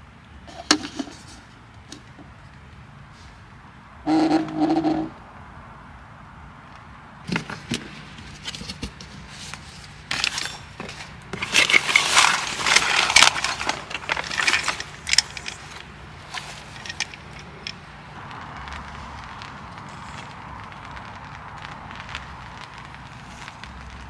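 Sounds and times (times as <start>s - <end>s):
plastic wrapping and fabric rustling: 7.3s - 24.0s.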